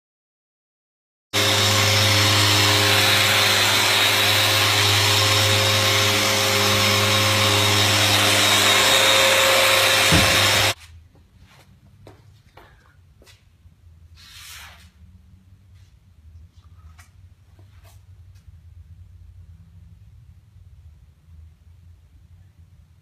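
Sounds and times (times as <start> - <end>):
dust extractor running: 1.4 - 10.8
orbital sander running: 1.4 - 10.8.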